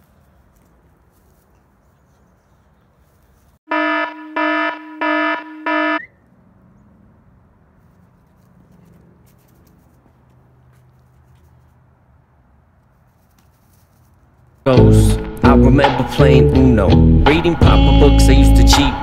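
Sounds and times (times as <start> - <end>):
faint outdoor background: 0.0 - 19.0
electronic buzzer beeps: 3.7 - 6.1.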